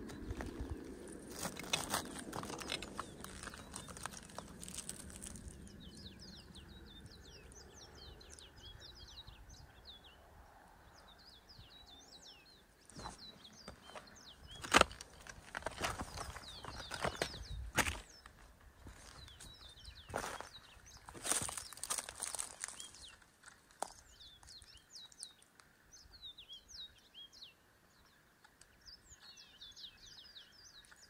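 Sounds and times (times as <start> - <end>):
footsteps crunching on rock: 0.0 - 5.7, 12.9 - 25.5.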